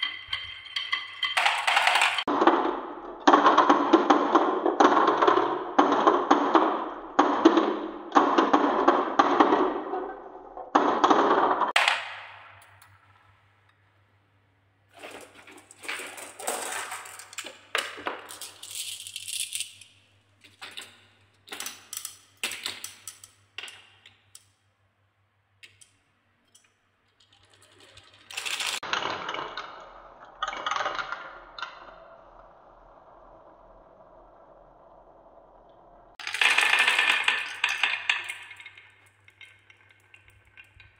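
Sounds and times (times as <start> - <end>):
marbles rolling on wooden tracks: 0.0 - 13.4, 14.9 - 24.5, 27.1 - 40.9
marbles clicking together: 15.7 - 20.0, 21.5 - 24.5, 36.2 - 40.9.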